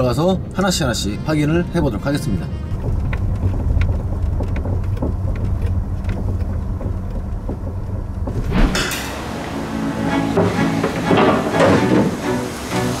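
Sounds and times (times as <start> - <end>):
car cabin road rumble: 0.0 - 9.6
underbody rattle clicks: 2.7 - 8.5
music: 8.6 - 13.0.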